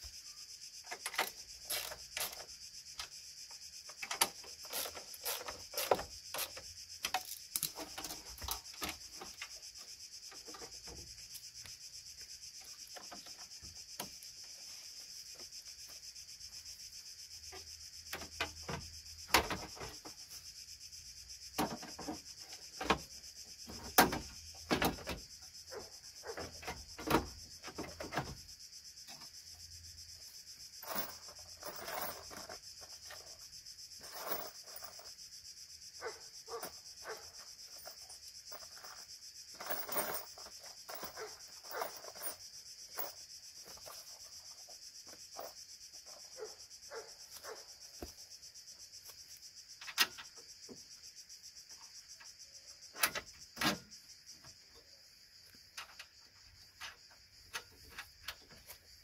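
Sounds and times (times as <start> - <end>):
tools clicking and knocking: 3.9 - 9.5
plastic parts scraping and rubbing: 4.0 - 9.4.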